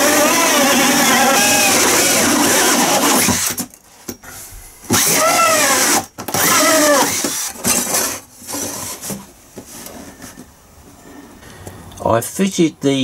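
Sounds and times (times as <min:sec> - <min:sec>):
cordless drill with hole saw: 0:00.0 - 0:03.7, 0:04.9 - 0:08.2.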